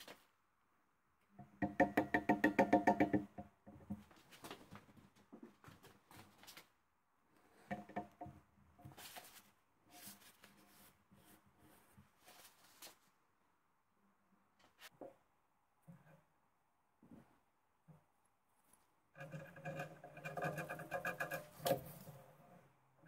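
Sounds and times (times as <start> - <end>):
paper rustling: 0.0 - 0.3, 12.2 - 13.1
knocks: 1.5 - 4.0.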